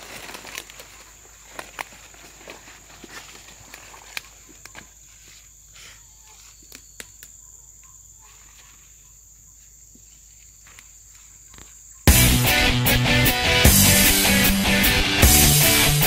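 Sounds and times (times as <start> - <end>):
insects calling: 0.0 - 16.0
rock music with electric guitar: 12.1 - 16.0.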